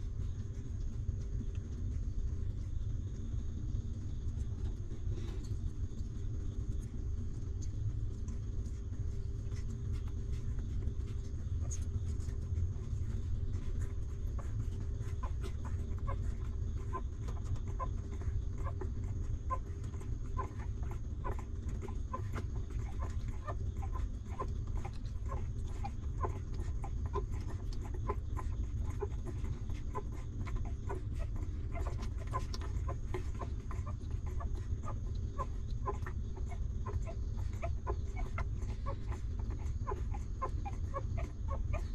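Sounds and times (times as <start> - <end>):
puppies squeaking: 12.9 - 41.9.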